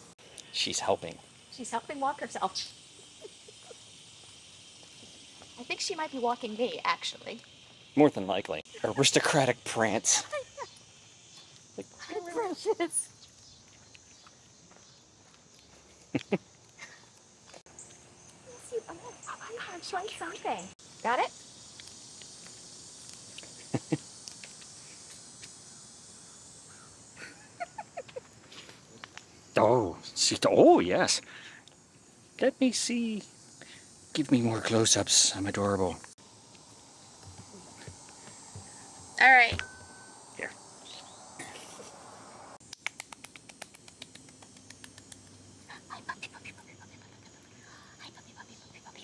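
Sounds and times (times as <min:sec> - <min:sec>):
insect chirring: 0:00.0 - 0:49.0
lip smacking clicks: 0:42.6 - 0:45.4.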